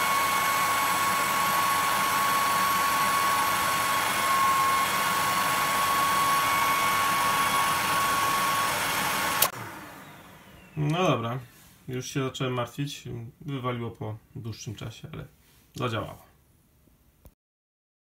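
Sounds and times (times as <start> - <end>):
hair dryer running: 0.0 - 11.1.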